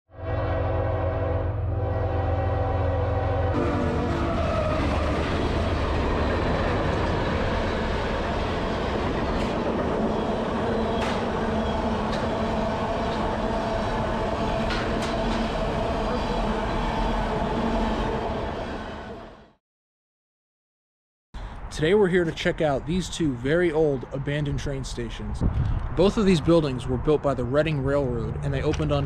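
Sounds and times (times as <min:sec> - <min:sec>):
train horn chord: 0:00.1 - 0:05.8, 0:10.1 - 0:19.5
train rumbling past: 0:00.2 - 0:19.6.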